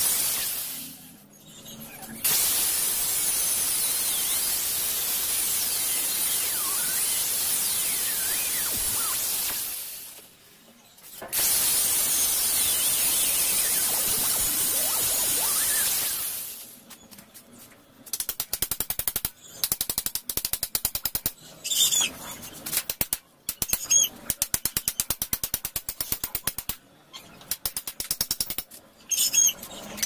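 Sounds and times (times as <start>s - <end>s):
bird chirps: 5.8s - 9.2s.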